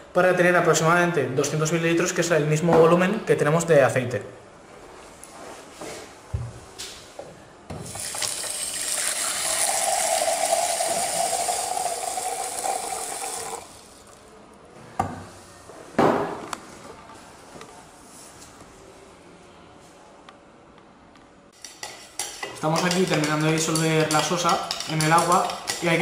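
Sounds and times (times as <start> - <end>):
tap water running into beaker: 7.9 - 14.2.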